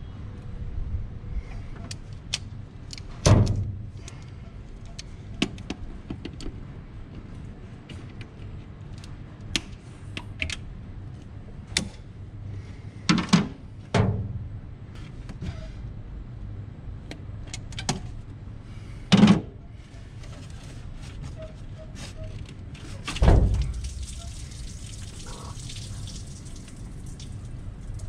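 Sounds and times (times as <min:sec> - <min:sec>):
low steady hum: 0:00.0 - 0:28.0
loud clunks: 0:23.2 - 0:23.9.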